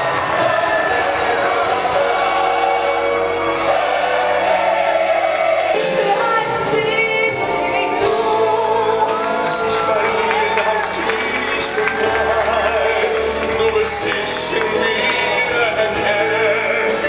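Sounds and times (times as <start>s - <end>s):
show music with singing: 0.0s - 17.0s.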